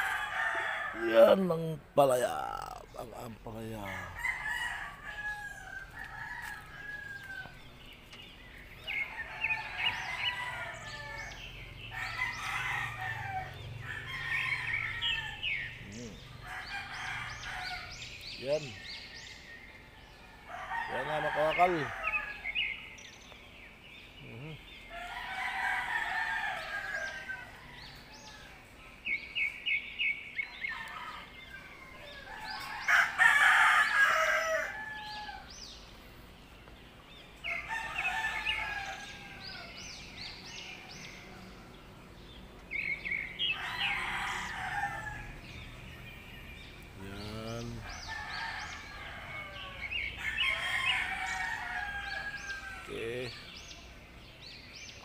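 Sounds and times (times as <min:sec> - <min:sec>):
rooster crowing: 0:00.0 - 0:01.4, 0:03.6 - 0:07.7, 0:08.8 - 0:18.2, 0:19.2 - 0:22.8, 0:24.9 - 0:28.7, 0:30.4 - 0:35.8, 0:37.4 - 0:41.9, 0:42.8 - 0:47.2, 0:47.8 - 0:53.7.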